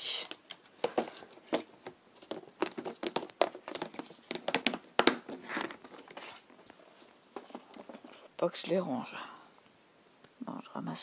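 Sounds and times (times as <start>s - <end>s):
plastic box clicks and knocks: 0.4s - 6.2s.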